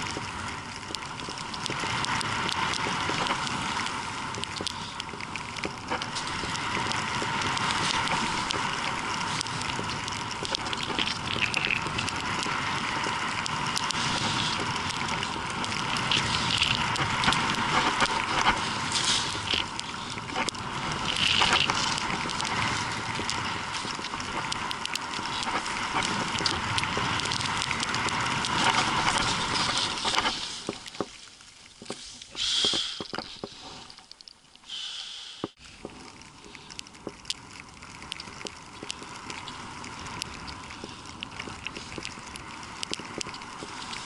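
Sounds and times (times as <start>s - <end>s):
skis hissing through powder snow: 6.1s - 30.9s, 31.9s - 33.9s.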